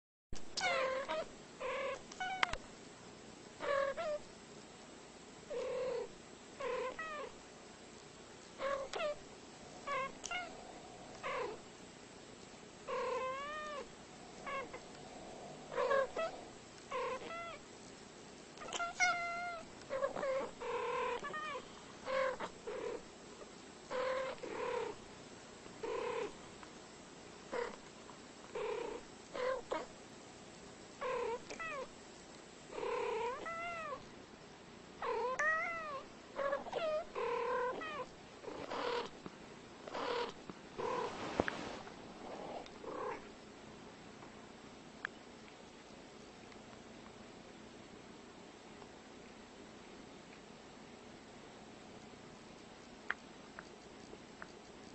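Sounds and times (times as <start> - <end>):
cats meowing and chirping: 15.7 - 17.6, 18.6 - 20.5, 21.1 - 22.6, 35.2 - 38.1.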